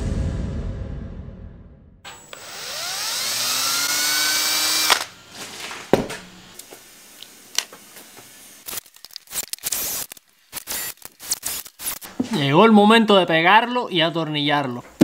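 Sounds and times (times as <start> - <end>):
cordless drill whining: 2.1 - 12.2.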